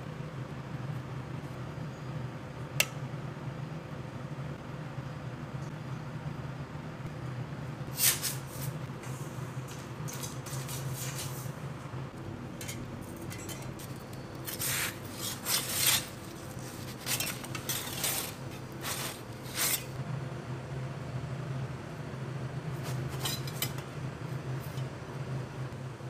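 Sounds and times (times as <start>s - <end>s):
metal peel scraping across stone: 14.4s - 20.0s.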